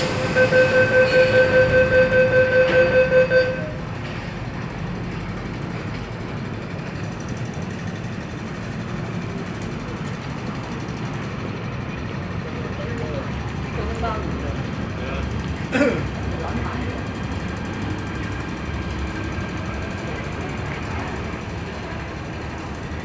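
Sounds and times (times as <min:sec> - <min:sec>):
rapid warning beeps: 0:00.0 - 0:03.8
train and station rumble: 0:00.0 - 0:23.0.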